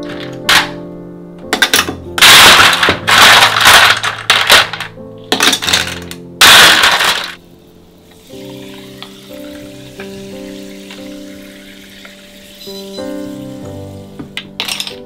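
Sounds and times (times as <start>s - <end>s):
ice cubes clattering in glass: 1.6s - 7.4s, 14.6s - 15.0s.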